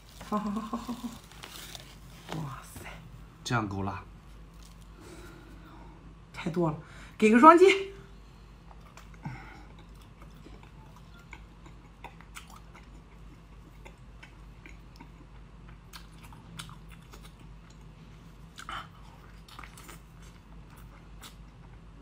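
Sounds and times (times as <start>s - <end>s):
person chewing food: 0.0s - 2.6s, 4.4s - 5.6s, 8.6s - 22.0s
low steady hum: 0.0s - 22.0s.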